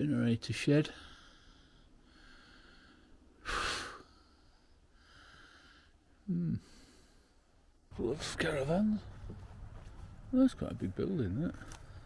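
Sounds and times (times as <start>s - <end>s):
man breathing out through nose: 1.1s - 6.0s.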